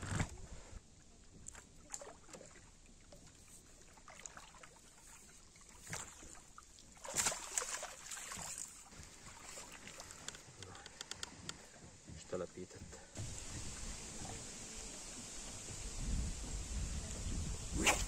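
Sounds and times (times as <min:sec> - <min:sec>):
fish splashing in water: 0:01.7 - 0:10.6.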